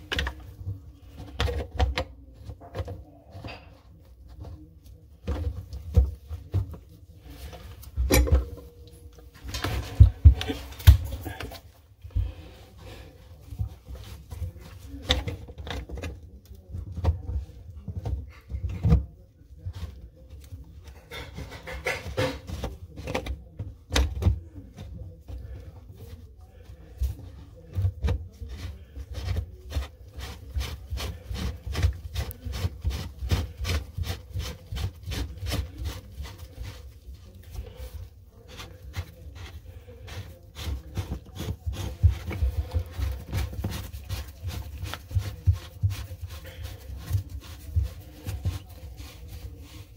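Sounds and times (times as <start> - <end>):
gloved hands scraping plastic: 20.9 - 49.9.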